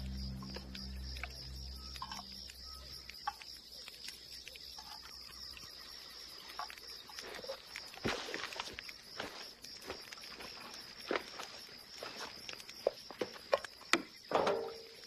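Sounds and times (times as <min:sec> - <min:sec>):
low music: 0:00.0 - 0:03.0
crickets chirping: 0:00.0 - 0:15.0.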